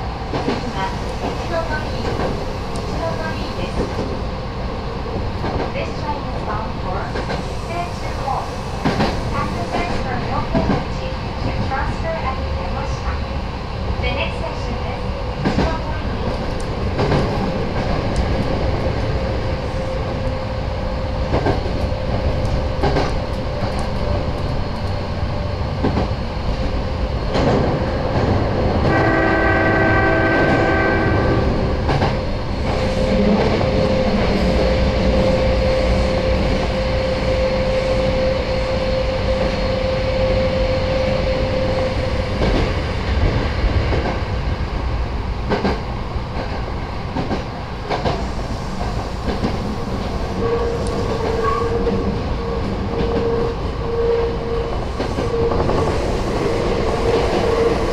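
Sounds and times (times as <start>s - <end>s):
electric train rumbling: 0.0s - 57.9s
train horn: 28.8s - 31.7s, 50.4s - 56.0s.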